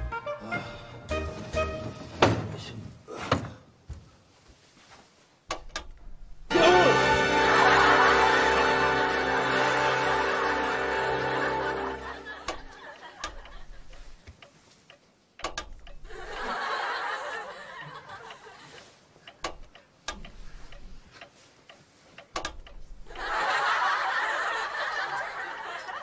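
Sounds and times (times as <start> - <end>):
studio audience laughing: 7.1 - 14.1, 16.1 - 18.8, 23.1 - 26.0.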